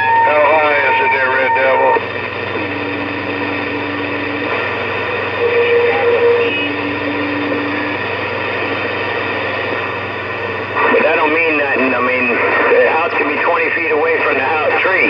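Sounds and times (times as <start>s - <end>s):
low steady whistle: 0.0s - 9.6s
radio static hiss: 0.0s - 15.0s.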